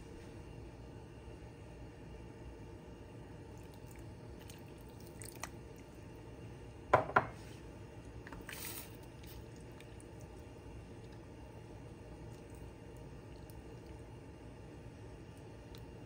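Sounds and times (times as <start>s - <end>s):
cookware knocking: 6.9s - 7.4s.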